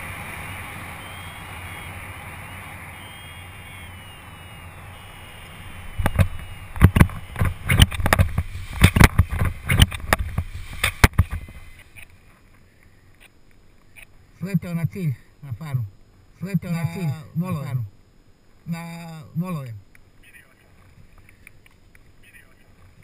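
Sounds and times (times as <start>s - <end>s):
wind rushing over microphone: 0.0s - 11.8s
thumps and buffets of landing: 5.9s - 11.7s.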